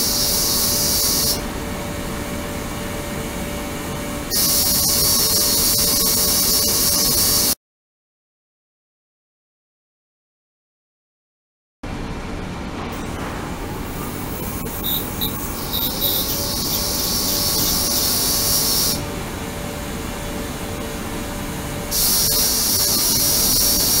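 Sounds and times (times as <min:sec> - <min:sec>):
ultrasonic cleaner high hiss: 0:00.0 - 0:01.5, 0:03.0 - 0:07.6, 0:13.6 - 0:24.0
steady low hum: 0:00.0 - 0:05.4, 0:11.8 - 0:24.0.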